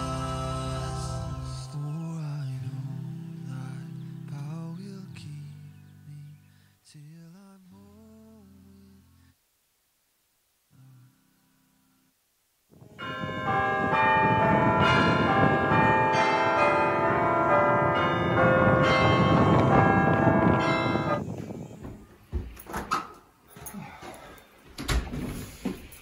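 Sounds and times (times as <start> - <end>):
church bells pealing: 12.8 - 21.2.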